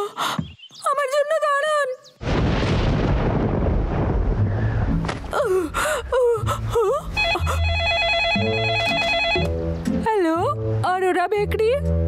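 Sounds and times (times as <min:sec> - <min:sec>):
telephone ringing: 0:07.2 - 0:09.5.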